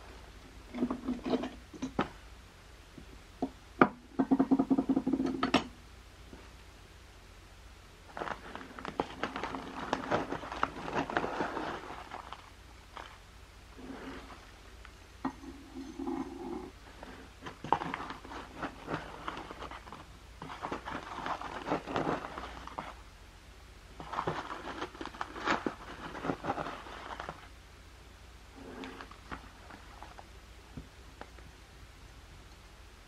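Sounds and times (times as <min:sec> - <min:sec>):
foil bag crinkling: 0:08.1 - 0:13.2, 0:16.9 - 0:23.0, 0:24.0 - 0:27.5.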